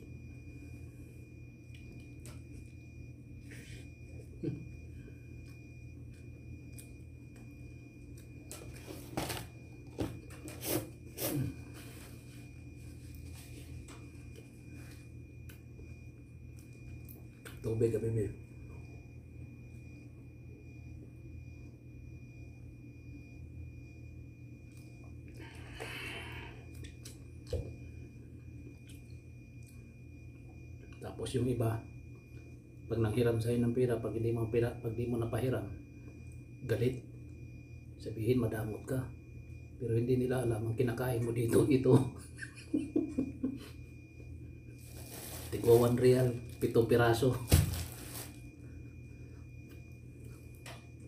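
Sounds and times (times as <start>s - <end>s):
steady low hum: 0.0s - 51.0s
crinkling rustles: 44.8s - 46.7s, 47.4s - 48.5s.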